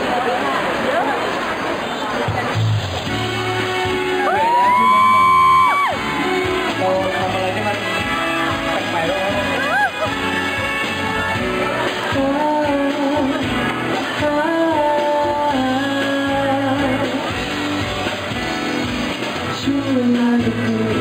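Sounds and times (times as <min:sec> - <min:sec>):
pop backing music: 0:02.3 - 0:21.0
man singing into microphone: 0:06.4 - 0:09.7, 0:12.1 - 0:17.4, 0:19.4 - 0:21.0.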